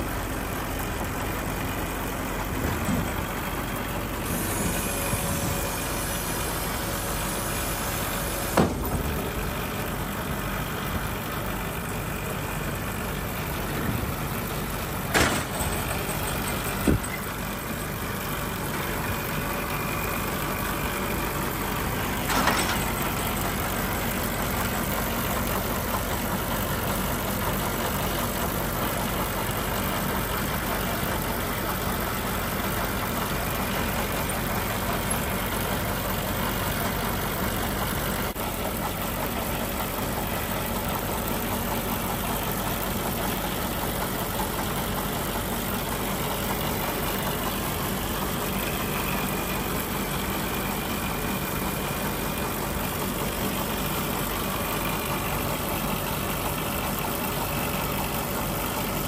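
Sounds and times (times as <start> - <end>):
engine idling: 0.0 - 59.0.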